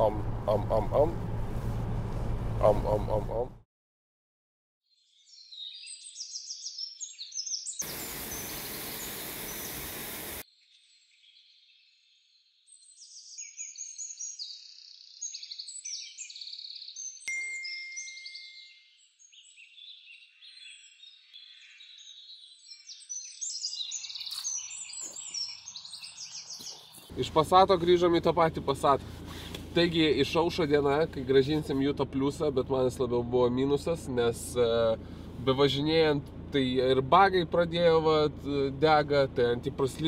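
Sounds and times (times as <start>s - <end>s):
songbirds chirping and trilling: 4.9s - 17.3s, 18.0s - 34.5s.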